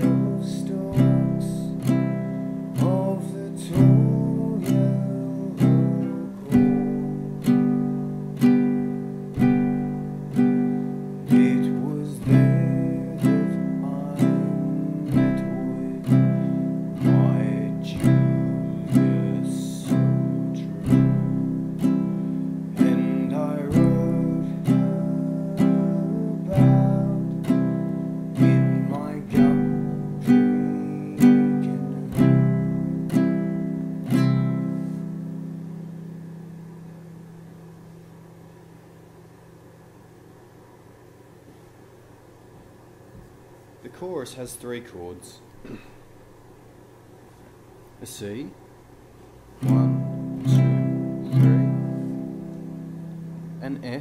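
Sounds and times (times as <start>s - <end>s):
ukulele strumming: 0.0s - 36.5s, 49.6s - 54.0s.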